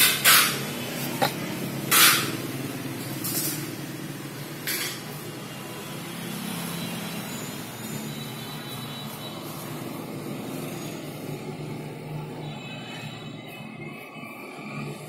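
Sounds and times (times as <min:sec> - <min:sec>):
low rumble of street traffic: 0:00.0 - 0:15.0.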